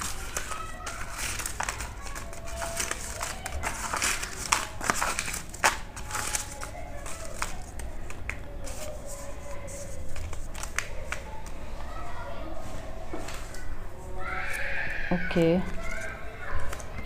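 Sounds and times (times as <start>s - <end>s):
paper slips rustling: 0.0s - 11.7s.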